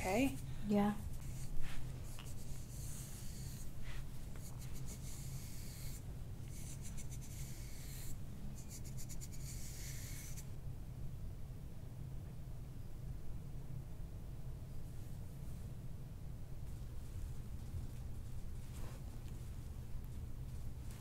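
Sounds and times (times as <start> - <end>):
fingers scratching through hair: 0.0 - 10.4.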